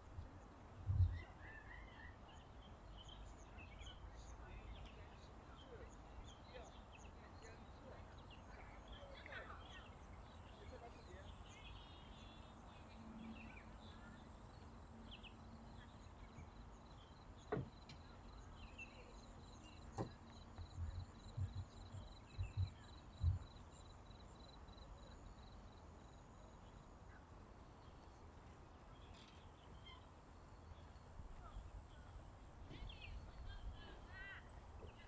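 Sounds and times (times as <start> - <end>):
soft low thumps: 20.0 - 23.8.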